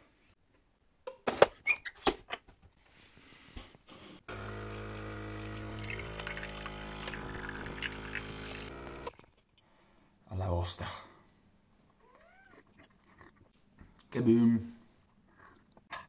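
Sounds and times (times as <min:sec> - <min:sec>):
espresso pump humming: 0:04.3 - 0:09.1
coffee pouring into cup: 0:04.3 - 0:09.2.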